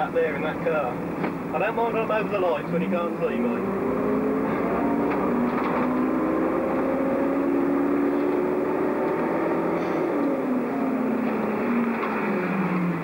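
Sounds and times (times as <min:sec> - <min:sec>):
bus diesel engine running: 0:00.0 - 0:13.0
road noise: 0:00.0 - 0:13.0.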